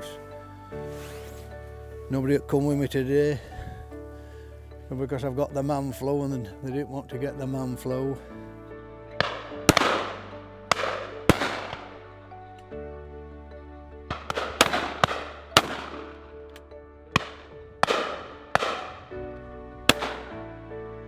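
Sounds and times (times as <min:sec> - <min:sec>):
background music: 0:00.0 - 0:21.0
shotgun reports echoing: 0:09.2 - 0:12.0, 0:14.1 - 0:16.2, 0:17.1 - 0:19.1, 0:19.9 - 0:20.4.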